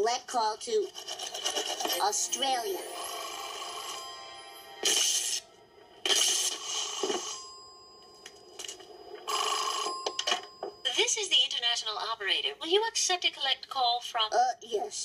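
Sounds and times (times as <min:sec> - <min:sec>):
cartoon telephone ringing: 0:07.2 - 0:11.7.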